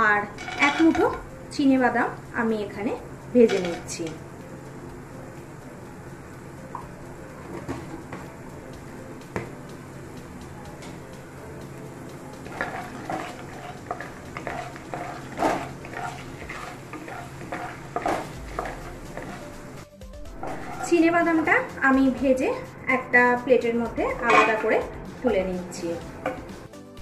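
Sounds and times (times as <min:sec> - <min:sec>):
peanuts sizzling in oil: 0:00.0 - 0:04.4, 0:11.9 - 0:21.7
spatula scraping pan: 0:00.3 - 0:01.2, 0:12.4 - 0:19.7, 0:20.4 - 0:21.2, 0:24.2 - 0:25.4.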